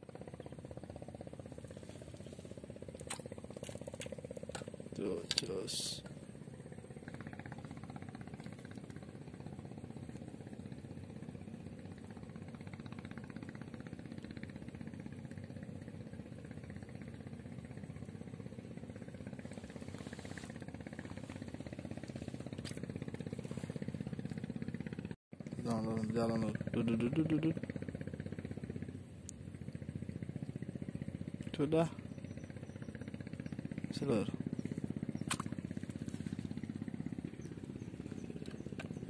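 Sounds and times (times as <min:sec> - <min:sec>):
small engine puttering: 0:00.0 - 0:39.0.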